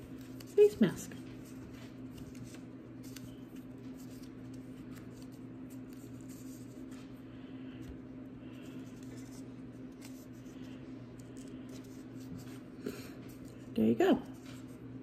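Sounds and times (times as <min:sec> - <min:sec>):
paper craft ticks and rustles: 0:00.0 - 0:07.2, 0:07.8 - 0:14.8
steady low hum: 0:00.0 - 0:15.0.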